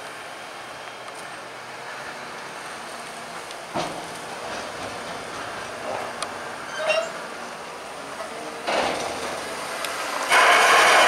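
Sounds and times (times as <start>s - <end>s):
diesel engines running: 0.0s - 11.0s
silage unloading from trailer: 3.4s - 11.0s
clunk: 3.7s - 7.1s, 8.2s - 9.6s.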